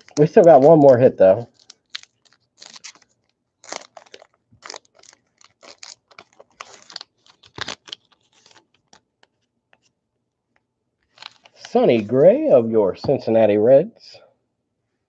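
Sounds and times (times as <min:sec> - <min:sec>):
wrapper crinkling and tearing: 0:00.0 - 0:09.4, 0:11.0 - 0:12.1.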